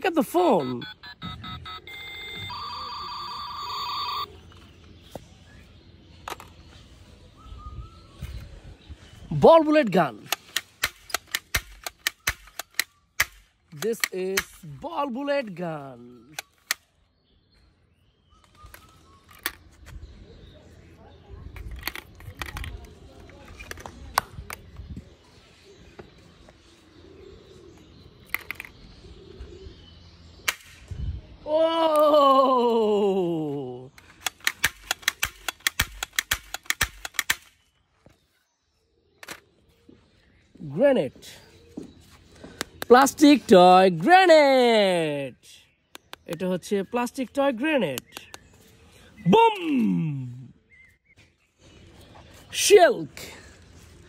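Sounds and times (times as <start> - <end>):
walkie-talkie electronic ringtone: 0.4 - 4.3
toy blaster plastic clicks: 34.2 - 37.5.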